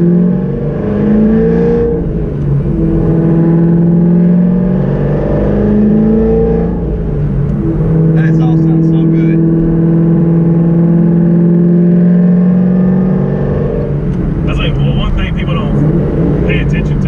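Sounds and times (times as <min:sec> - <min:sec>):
car engine accelerating through gears: 0:00.0 - 0:17.0.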